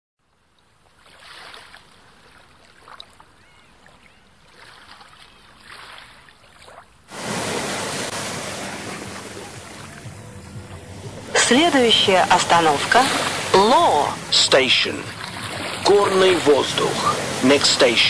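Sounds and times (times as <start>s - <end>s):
sea water washing: 0.9s - 18.0s
rush of churning foaming water: 7.1s - 18.0s.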